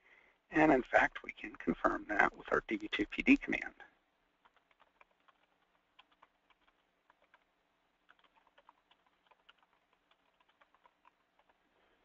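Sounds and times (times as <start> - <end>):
faint keyboard typing: 1.1 - 12.0.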